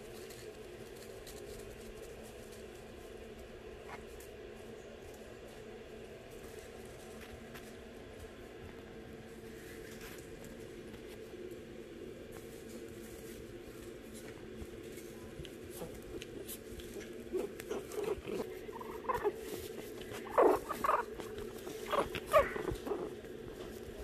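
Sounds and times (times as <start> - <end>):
steady low hum: 0.0 - 24.0
puppy whimpering and yipping: 17.3 - 23.1.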